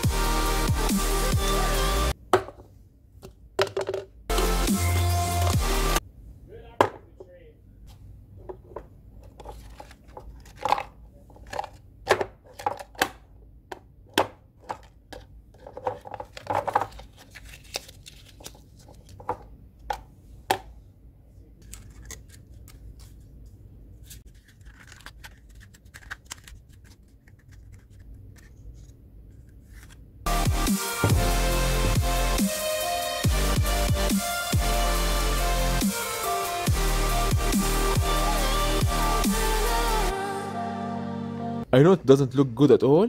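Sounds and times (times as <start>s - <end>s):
paper rustling and scraping: 9.3s - 10.7s, 15.6s - 19.3s, 24.0s - 30.0s
aluminium can crinkling: 24.3s - 28.5s.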